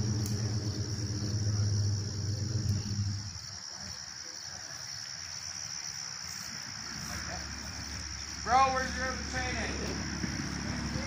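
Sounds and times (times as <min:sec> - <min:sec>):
low motor hum: 0:00.0 - 0:03.6
insects chirring: 0:00.0 - 0:11.0.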